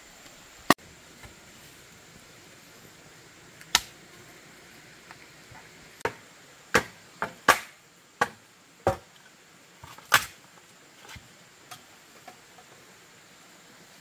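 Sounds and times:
bamboo poles knocking: 5.6s - 9.1s.

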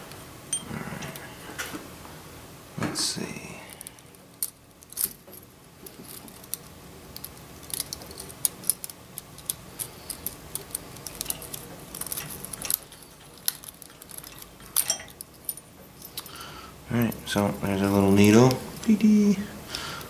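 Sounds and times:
small metal parts clicking: 3.7s - 18.6s.

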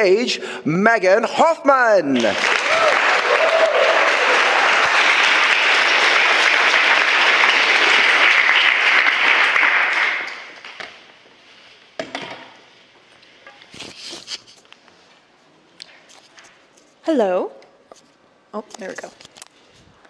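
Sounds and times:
audience applauding: 2.1s - 10.7s.

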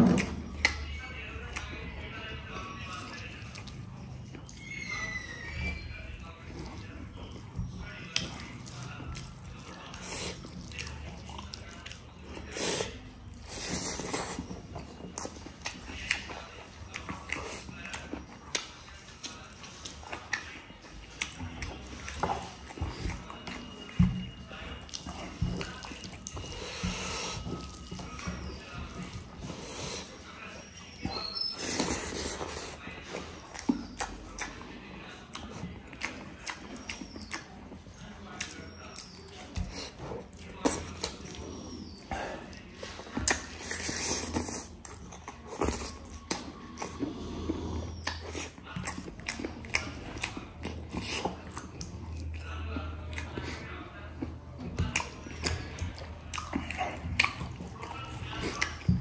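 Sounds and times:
person chewing food: 6.2s - 59.0s.

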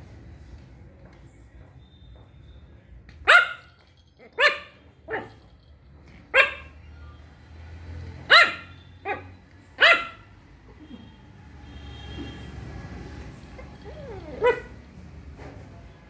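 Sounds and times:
puppy yapping: 8.3s - 10.2s, 13.6s - 14.8s.

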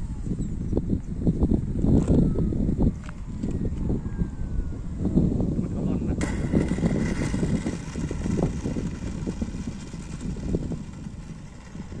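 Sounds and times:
electric ducted fan whine: 0.0s - 12.0s
gusty wind on microphone: 0.0s - 12.0s.

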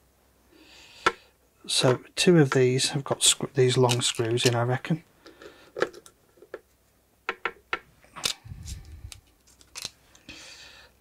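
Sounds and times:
small plastic and metal clicks: 8.2s - 10.2s.

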